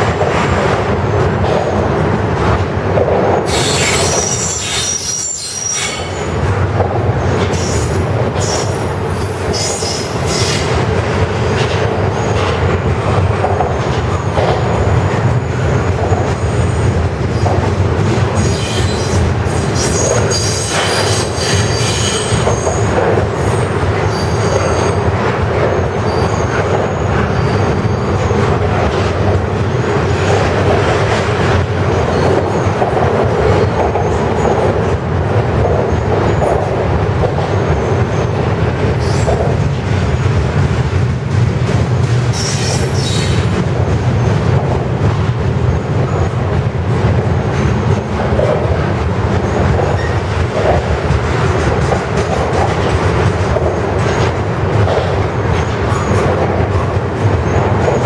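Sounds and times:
train wheels rumbling on rail: 0:00.0 - 0:58.0
wheel squeals: 0:03.5 - 0:06.2, 0:18.4 - 0:22.9, 0:42.3 - 0:43.4.

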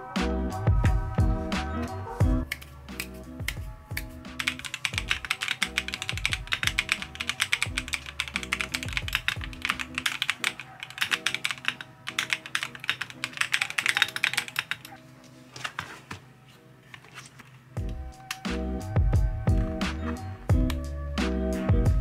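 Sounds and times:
background music: 0:00.0 - 0:22.0
fast typing on keyboard: 0:04.4 - 0:15.0.

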